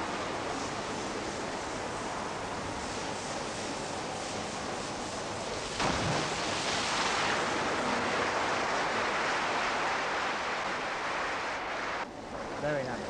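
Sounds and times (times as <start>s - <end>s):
film background hiss: 0.0s - 13.0s
churned water rushing: 5.3s - 12.1s
diver splashing into water: 5.8s - 9.5s.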